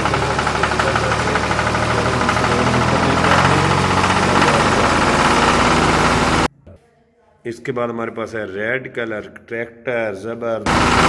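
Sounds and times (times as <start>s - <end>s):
diesel tractor engine idling: 0.0s - 6.5s, 10.7s - 11.0s.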